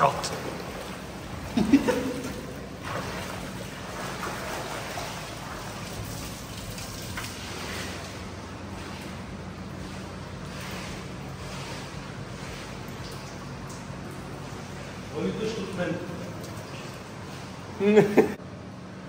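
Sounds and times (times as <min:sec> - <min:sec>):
rushing splashing water: 0:00.0 - 0:09.4.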